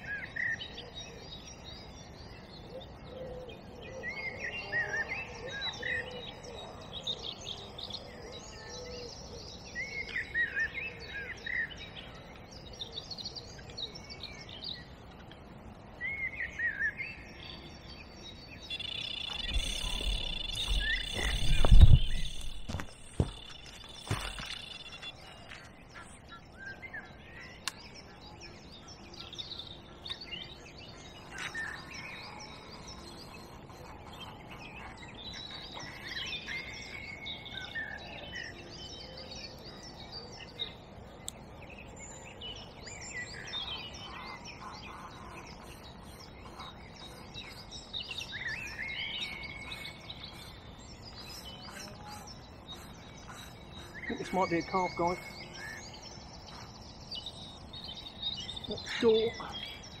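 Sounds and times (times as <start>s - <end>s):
faint outdoor background: 0.0s - 60.0s
birds chirping and whistling: 15.9s - 60.0s.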